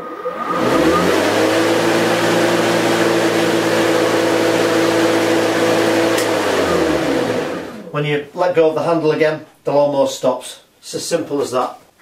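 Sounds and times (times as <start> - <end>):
electric lawnmower running: 0.3 - 7.8.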